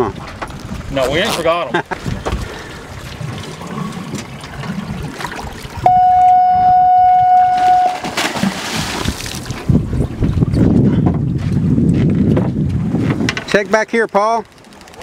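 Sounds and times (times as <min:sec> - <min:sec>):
loud electronic censor bleep: 0:05.8 - 0:08.1.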